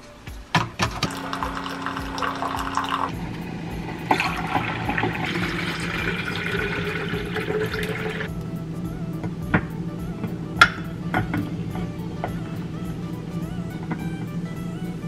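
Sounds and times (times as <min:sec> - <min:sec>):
coffee maker humming: 0:00.5 - 0:15.0
water pouring into plastic bottle: 0:00.9 - 0:03.1, 0:04.1 - 0:08.3.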